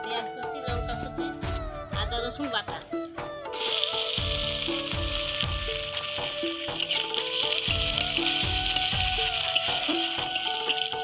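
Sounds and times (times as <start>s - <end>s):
background music with steady beat: 0.0s - 11.0s
onion sizzling in hot oil: 3.5s - 11.0s.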